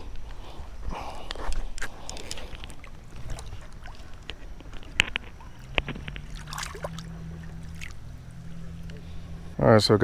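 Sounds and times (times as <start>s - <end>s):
water sloshing and splashing: 1.6s - 9.3s
sharp splashes: 5.4s - 8.1s.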